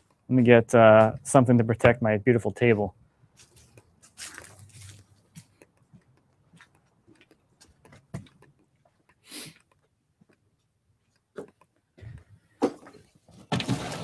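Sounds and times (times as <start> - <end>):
faint clicks and knocks: 5.3 - 13.1.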